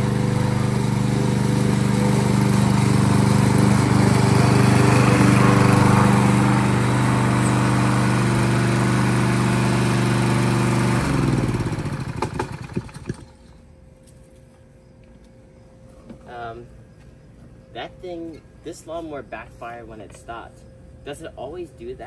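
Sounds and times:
lawnmower engine running: 0:00.0 - 0:13.6.

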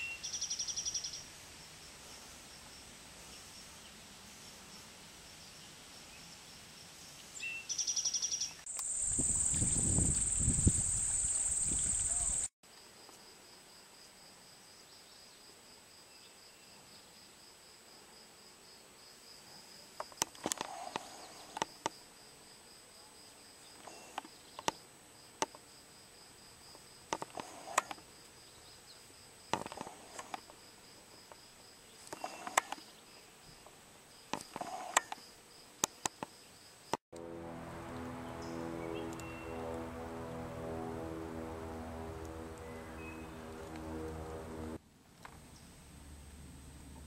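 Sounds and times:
insects chirping: 0:07.0 - 0:12.5
steady high buzz: 0:08.7 - 0:12.5, 0:37.1 - 0:44.8
music: 0:37.2 - 0:44.8.

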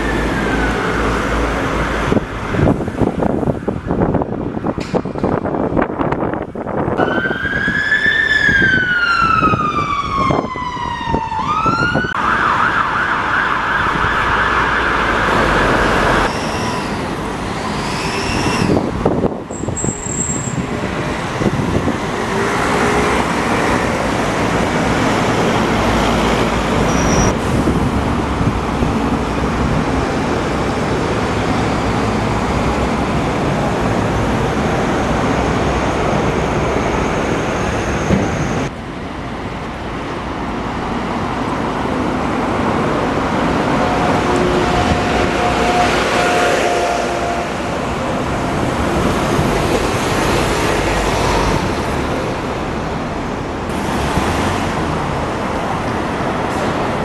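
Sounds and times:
road traffic noise: 0:00.0 - 0:57.0
emergency siren wailing and yelping: 0:07.0 - 0:16.3.

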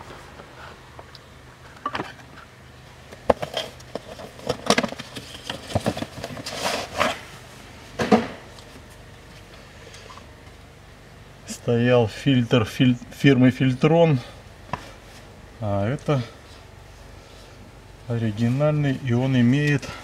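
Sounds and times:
cardboard rustling: 0:03.3 - 0:07.3.

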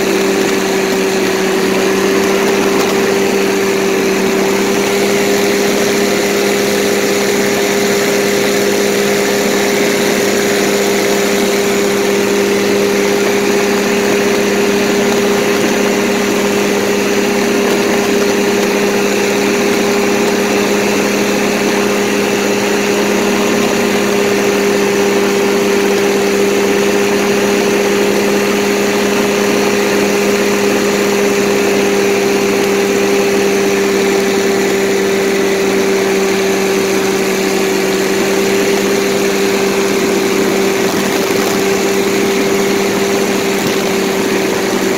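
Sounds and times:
paramotor engine and propeller drone: 0:00.0 - 0:44.9.

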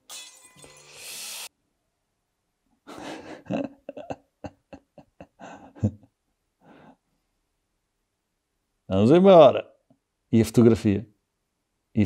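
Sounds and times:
man laughing: 0:02.9 - 0:06.1.

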